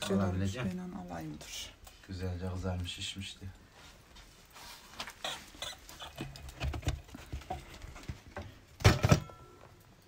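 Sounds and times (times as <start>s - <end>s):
knocks and clatter of handling: 6.0s - 9.6s.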